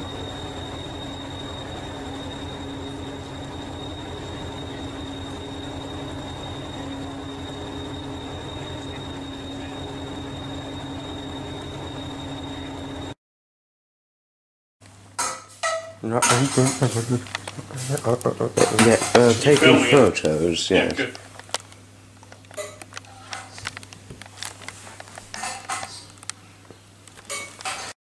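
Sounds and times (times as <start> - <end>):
diesel engine idling: 0.0 - 13.0
high-pitched whine: 0.0 - 13.2, 15.2 - 26.4.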